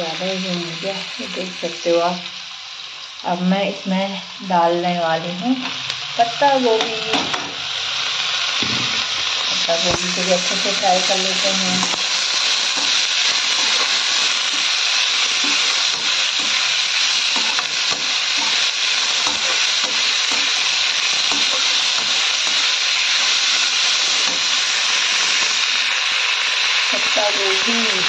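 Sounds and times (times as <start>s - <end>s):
vegetables sizzling in a pan: 0.0s - 28.0s
steel spoon scraping a pan: 9.4s - 25.6s.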